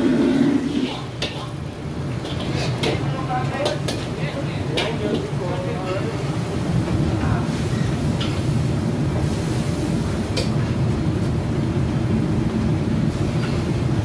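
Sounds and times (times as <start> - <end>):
gas burners and hood rumbling: 0.0 - 14.0
ladles clanking against woks: 0.8 - 8.6.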